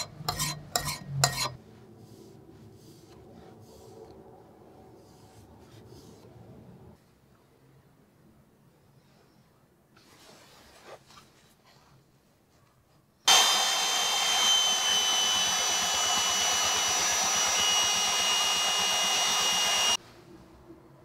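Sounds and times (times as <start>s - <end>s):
belt sander grinding metal: 13.3s - 20.0s.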